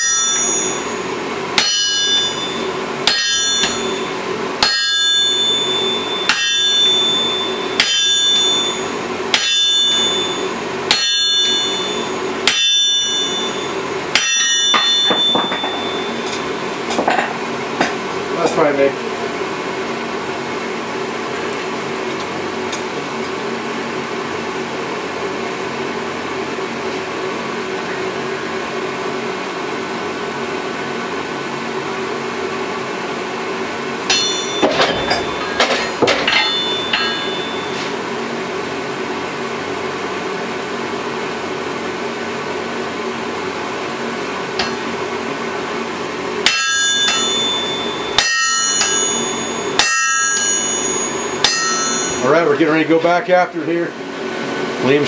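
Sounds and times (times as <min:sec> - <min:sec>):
sledgehammer strikes ringing: 0:00.0 - 0:17.2, 0:34.0 - 0:38.0, 0:46.4 - 0:52.4
hammer striking hot steel on anvil: 0:00.0 - 0:18.6, 0:34.0 - 0:38.0, 0:44.5 - 0:45.3, 0:46.4 - 0:52.5
steady background drone: 0:00.0 - 0:55.0.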